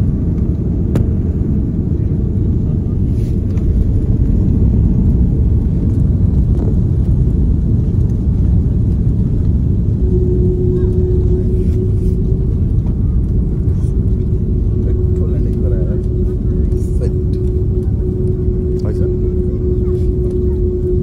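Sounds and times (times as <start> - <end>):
airliner rumbling on the ground: 0.0 - 21.0
thin steady hum: 9.4 - 21.0.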